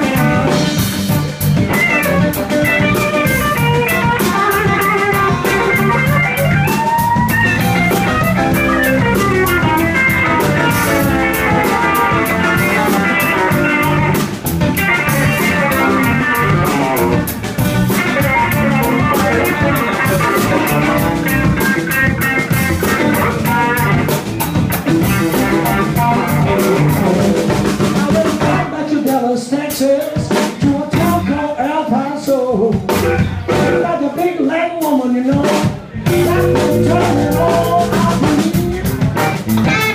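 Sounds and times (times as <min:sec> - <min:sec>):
electric guitar bending notes: 0:00.0 - 0:27.7, 0:36.0 - 0:39.9
blues band playing: 0:00.0 - 0:39.9.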